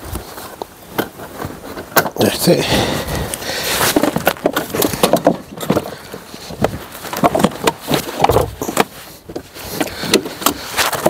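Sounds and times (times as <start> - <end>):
plastic and metal parts knocking: 3.9 - 11.0.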